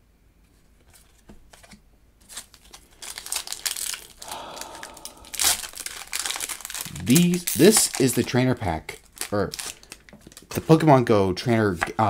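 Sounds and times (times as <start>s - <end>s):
foil wrapper crinkling and tearing: 2.2s - 10.9s.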